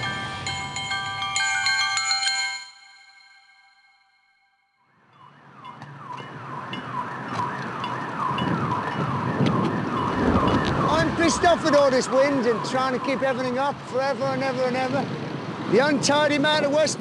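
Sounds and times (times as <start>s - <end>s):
emergency vehicle siren: 0.0s - 2.0s, 2.8s - 15.0s
low rumble of traffic: 0.0s - 2.6s, 4.9s - 17.0s
chime-like ringing tones: 0.0s - 6.9s.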